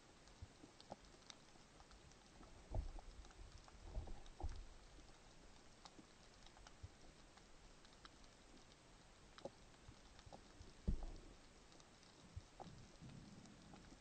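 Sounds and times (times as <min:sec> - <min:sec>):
low hiss: 0:00.0 - 0:14.0
underwater crackling clicks: 0:00.0 - 0:14.0
dull low thumps: 0:10.8 - 0:11.3.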